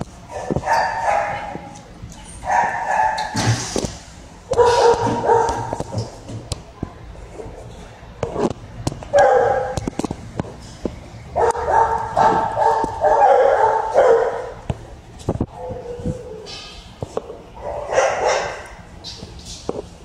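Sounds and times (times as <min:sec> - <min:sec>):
dog barking: 0:00.3 - 0:01.6, 0:02.4 - 0:03.3, 0:04.5 - 0:05.8, 0:09.1 - 0:09.8, 0:11.4 - 0:14.6, 0:17.6 - 0:18.7.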